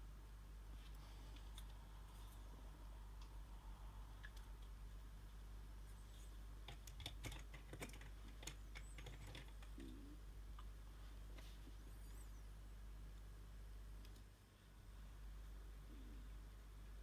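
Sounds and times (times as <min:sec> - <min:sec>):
steady low hum: 0:00.0 - 0:17.0
faint clicks and taps: 0:04.2 - 0:05.4, 0:06.6 - 0:10.7, 0:14.0 - 0:14.3.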